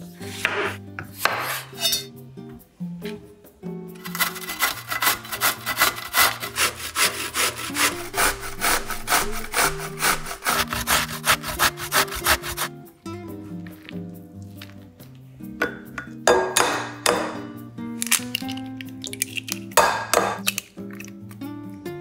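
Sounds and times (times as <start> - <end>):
soft background music: 0.0 - 22.0
vegetable rasping on grater: 4.0 - 12.7.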